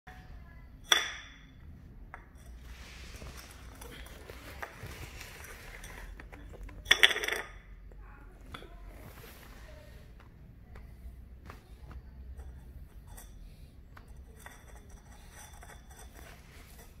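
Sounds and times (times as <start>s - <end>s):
ceramic dish clinking: 0.8s - 7.8s, 12.3s - 17.0s.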